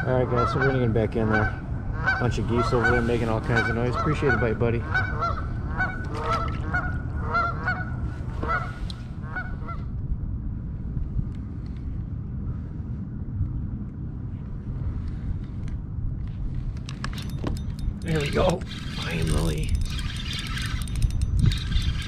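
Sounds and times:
wind rumble on microphone: 0.0 - 22.0
geese honking: 0.2 - 9.8.

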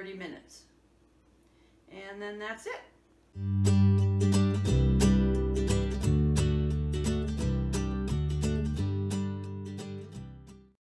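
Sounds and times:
background music with strummed beat: 3.4 - 10.8.

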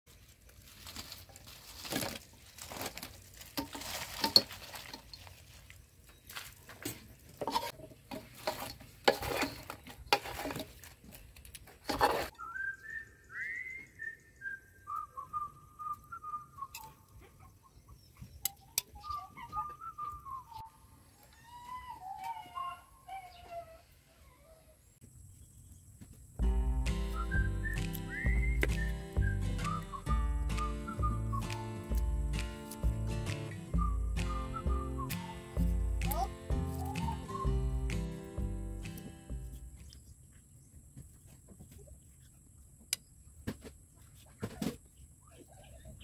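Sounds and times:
scraping in a wok: 6.8 - 10.9
person whistling a tune: 12.4 - 16.9, 26.8 - 32.4, 33.1 - 38.2.

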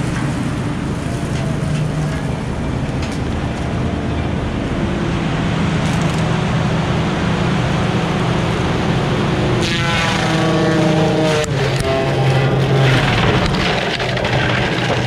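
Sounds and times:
diesel engine and mulcher drone: 0.0 - 15.0.

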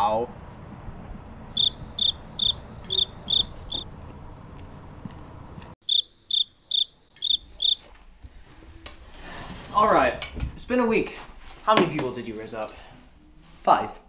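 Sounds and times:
cricket chirps: 1.5 - 3.9, 5.8 - 7.9.

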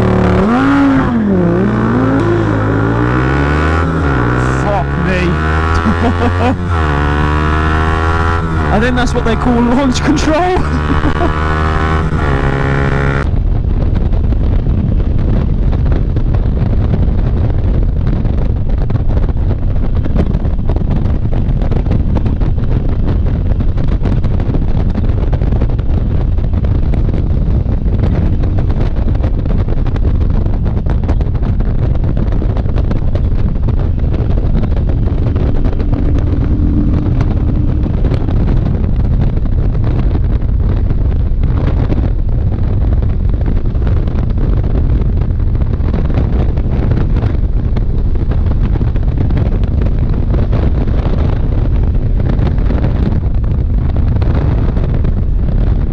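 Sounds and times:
motorcycle engine: 0.0 - 13.4, 32.6 - 41.4
wind rushing over microphone: 0.0 - 55.9.

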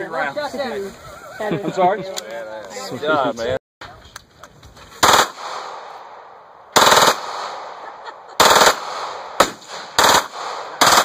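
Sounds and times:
automatic pistol firing bursts: 5.0 - 5.7, 6.8 - 7.6, 8.4 - 11.0
gunshot echoes: 5.0 - 7.8, 8.4 - 11.0.

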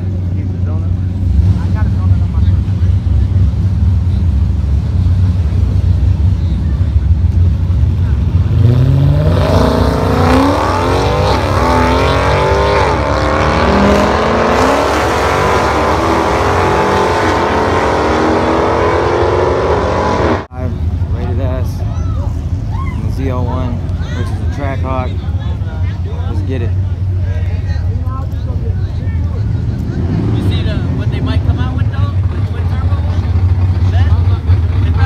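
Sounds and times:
drag racing cars accelerating: 0.0 - 21.1, 29.3 - 35.0.

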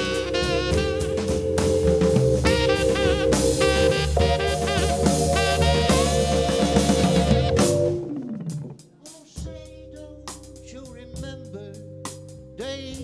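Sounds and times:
tenor saxophone: 0.0 - 8.2
drums: 0.0 - 13.0
organ chords: 0.0 - 13.0.

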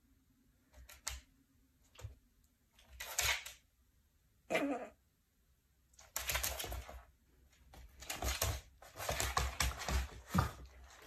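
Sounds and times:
puppy claws clicking on wood floor: 0.7 - 1.3, 1.9 - 3.6, 6.0 - 11.0.

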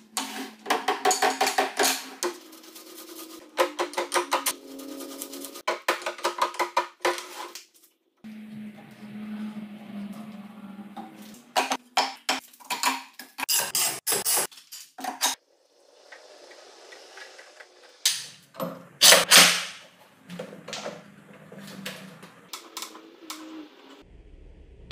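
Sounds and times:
low steady hum: 8.3 - 11.6.

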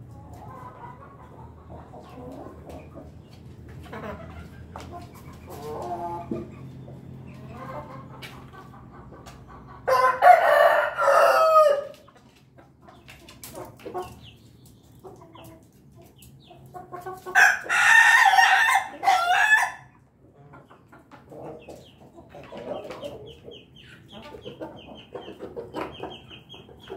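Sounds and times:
chicken clucking: 0.0 - 26.9
rooster stuttering crow: 9.9 - 11.9.

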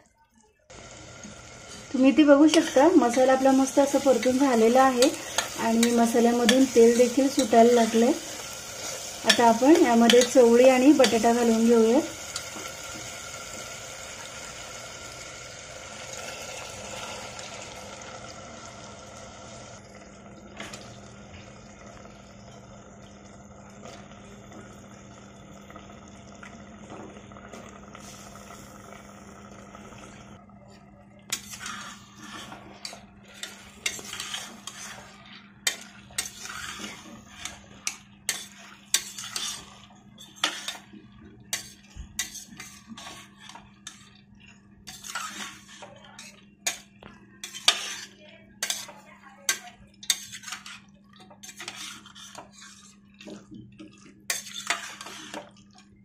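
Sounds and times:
metal spatula scraping a pot: 2.4 - 12.3, 31.3 - 40.9, 41.5 - 44.1, 44.8 - 46.8, 47.4 - 53.0, 54.3 - 55.5.

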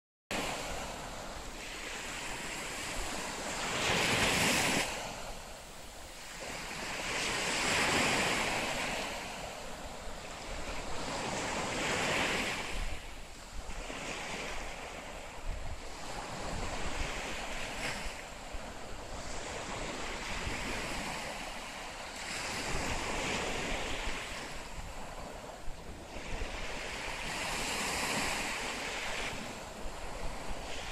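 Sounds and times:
small waves washing up a beach: 0.3 - 30.9.

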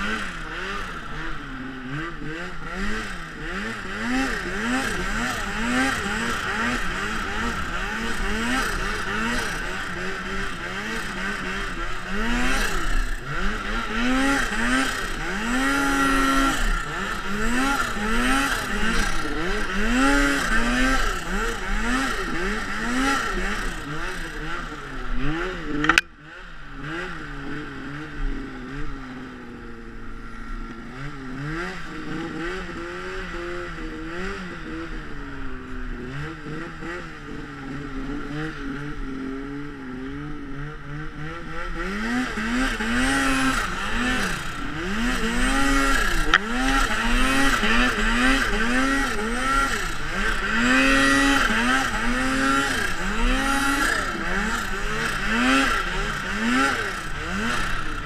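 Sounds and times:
snowmobile engine revving: 0.0 - 58.0
sharp click: 25.7 - 26.1.

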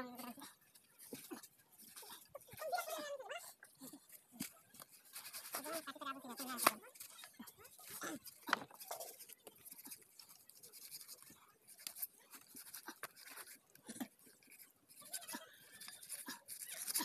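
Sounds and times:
knife scraping through skin: 4.4 - 7.3.

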